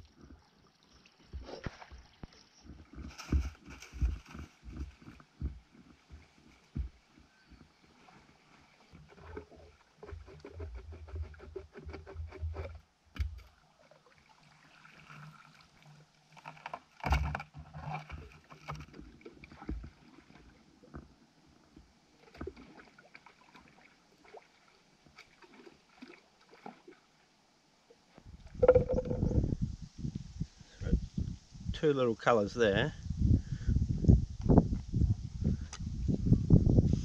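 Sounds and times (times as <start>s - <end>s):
water splashing and sloshing: 0.0s - 29.6s
knocks and handling noises: 28.6s - 29.4s.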